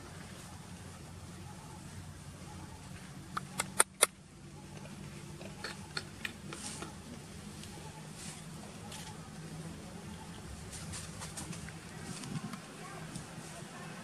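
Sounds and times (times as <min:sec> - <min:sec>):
sharp clicks: 0:03.3 - 0:04.2.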